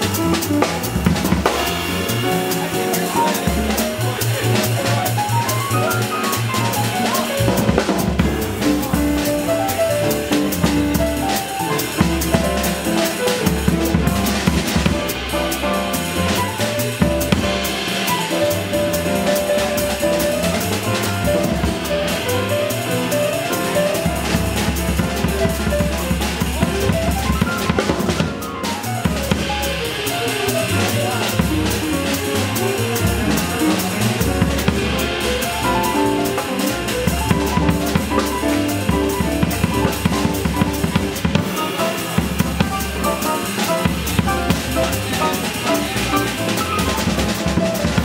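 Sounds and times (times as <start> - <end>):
drum kit with cymbals: 0.0 - 48.0
plucked double bass: 0.0 - 48.0
upright piano: 0.0 - 48.0.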